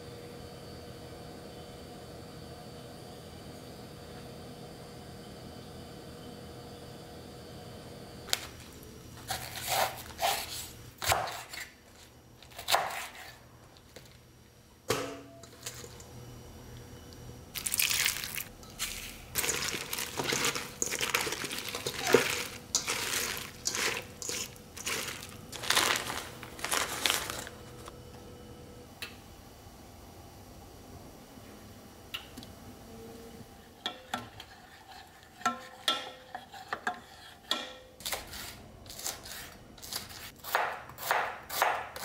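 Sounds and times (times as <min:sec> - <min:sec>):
knife cutting cabbage: 0:09.2 - 0:13.4, 0:18.8 - 0:27.4, 0:38.0 - 0:42.0
crinkly mixing in metal bowl: 0:17.6 - 0:27.9.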